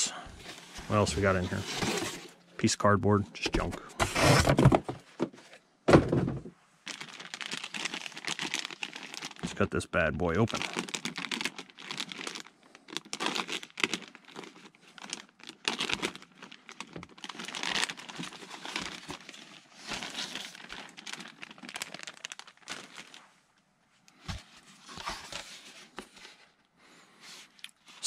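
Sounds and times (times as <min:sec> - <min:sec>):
plastic bag crinkling and tearing: 0:06.8 - 0:23.3.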